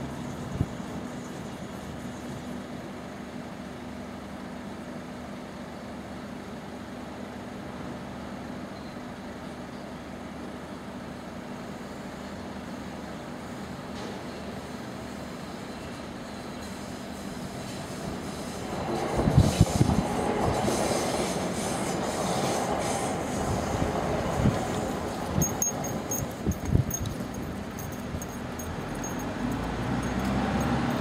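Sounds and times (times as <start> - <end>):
street traffic noise: 0.0 - 31.0
vehicles idling: 17.9 - 31.0.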